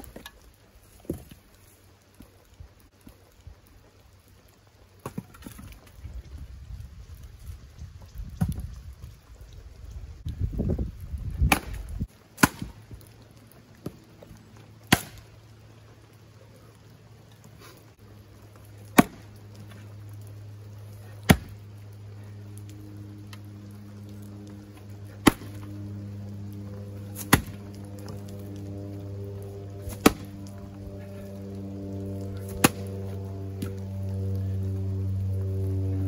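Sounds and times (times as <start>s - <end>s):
axe splitting firewood: 11.4s - 12.8s, 14.9s - 15.3s, 18.8s - 19.9s, 21.0s - 21.6s, 24.7s - 25.7s, 27.0s - 28.4s, 29.7s - 30.4s, 32.4s - 33.0s.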